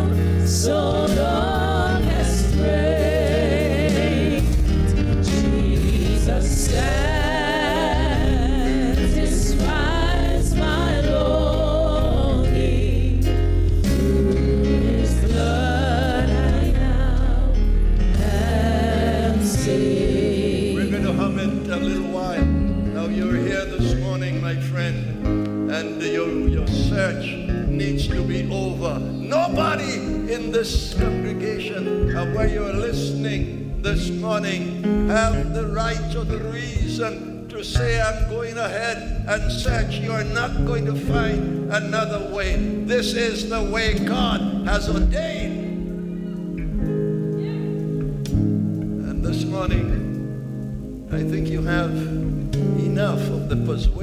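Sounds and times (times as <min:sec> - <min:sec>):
women singing gospel: 0:00.0 - 0:22.2
live band accompaniment: 0:00.0 - 0:54.0.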